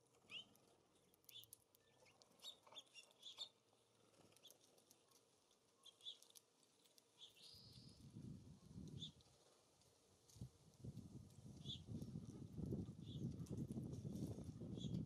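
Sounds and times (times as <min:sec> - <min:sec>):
songbird chirps: 0:00.2 - 0:09.3.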